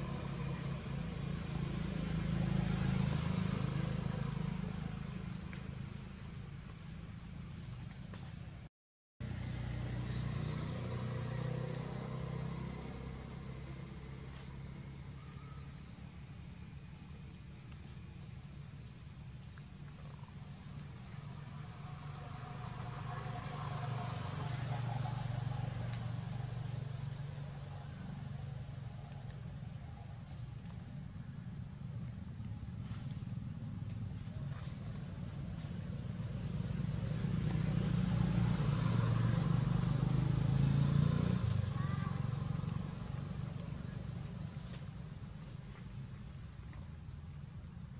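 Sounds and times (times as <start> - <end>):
insects buzzing: 0.0 - 47.9.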